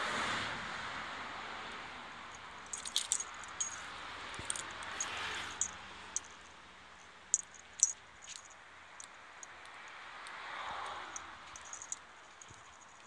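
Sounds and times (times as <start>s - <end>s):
light jingles: 2.3s - 9.9s, 10.8s - 13.0s.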